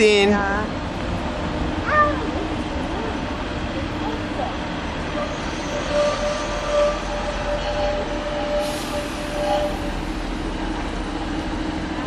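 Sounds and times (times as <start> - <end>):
diesel locomotive engine hum: 0.0 - 12.0
wheels squealing: 4.9 - 10.3.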